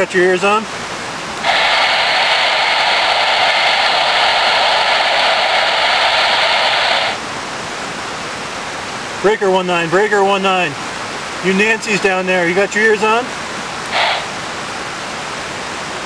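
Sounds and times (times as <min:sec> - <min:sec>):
radio static hiss: 0:00.0 - 0:07.3, 0:11.4 - 0:14.9.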